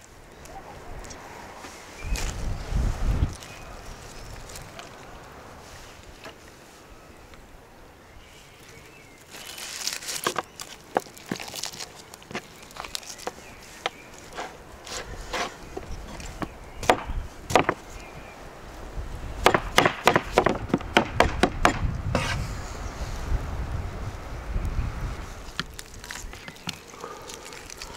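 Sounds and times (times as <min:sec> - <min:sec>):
hands tearing roast chicken: 0:09.3 - 0:13.6, 0:25.4 - 0:27.9
cleaver chopping on wooden board: 0:16.4 - 0:17.8, 0:19.4 - 0:22.4.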